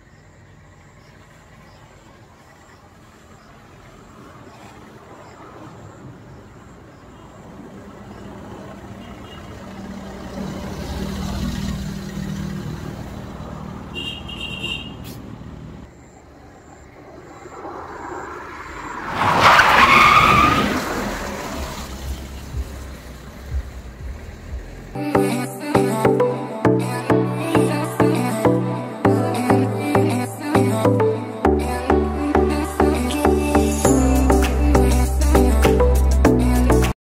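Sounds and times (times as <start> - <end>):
car engine under load: 0.0 - 25.0.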